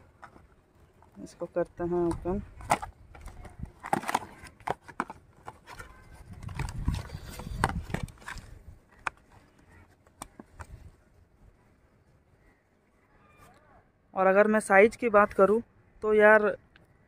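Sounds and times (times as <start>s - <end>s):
cardboard box crackling: 0.0s - 10.8s.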